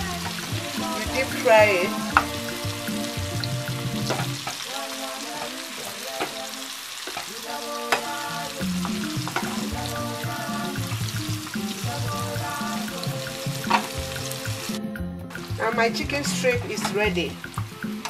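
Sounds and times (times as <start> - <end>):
chicken sizzling in hot oil: 0.1 - 14.8
utensils clicking against pan: 13.6 - 14.6.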